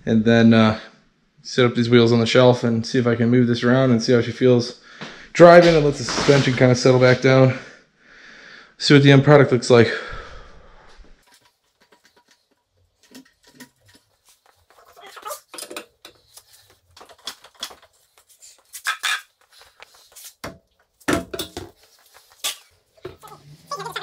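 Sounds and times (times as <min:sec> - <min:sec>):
heavy thumps: 0:05.0 - 0:07.4
metallic clinks and scrapes of tools: 0:11.2 - 0:19.9.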